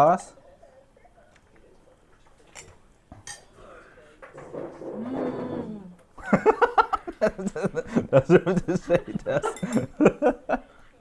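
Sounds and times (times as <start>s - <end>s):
person humming mmm: 5.0s - 6.0s
laughter: 6.2s - 10.9s
chopsticks clinking against bowls: 9.4s - 10.0s.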